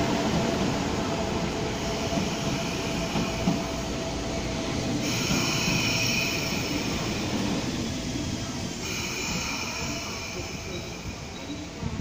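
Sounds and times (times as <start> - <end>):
train wheels rumbling on rail: 0.0 - 12.0
high hiss: 4.9 - 11.8.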